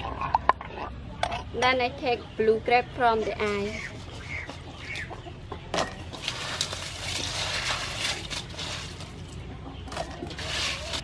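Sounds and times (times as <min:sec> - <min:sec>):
crushed ice crunching and rattling: 0:06.1 - 0:11.0.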